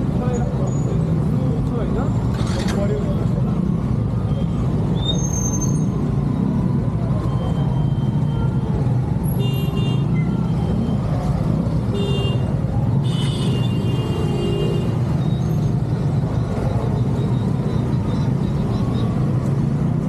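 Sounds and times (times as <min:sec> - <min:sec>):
scooter engine and road rumble: 0:00.0 - 0:20.0
street traffic: 0:00.0 - 0:20.0
vehicle horns beeping: 0:11.9 - 0:15.1.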